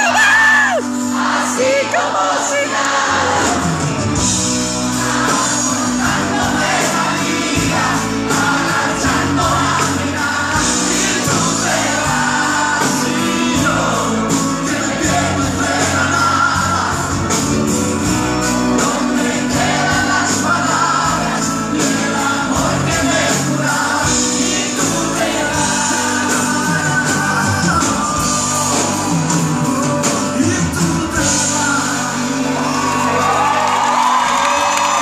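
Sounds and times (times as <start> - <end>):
crowd shouting and whooping: 0.0 - 4.1, 32.4 - 35.0
men singing duet: 0.0 - 34.4
live band playing pop ballad: 0.0 - 35.0.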